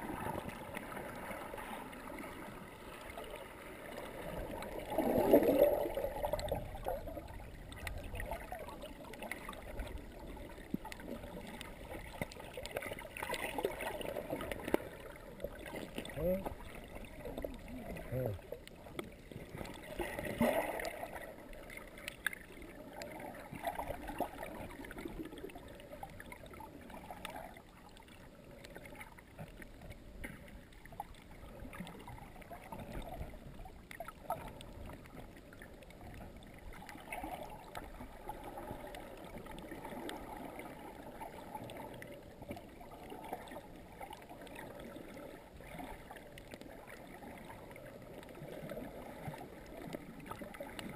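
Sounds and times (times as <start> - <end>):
water gurgling underwater: 0.0 - 50.9.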